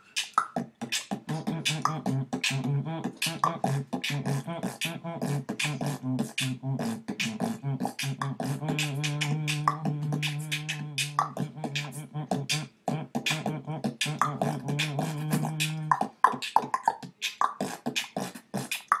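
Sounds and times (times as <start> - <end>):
beatboxing percussion: 0.0 - 19.0
low voiced bass tone: 7.6 - 16.0.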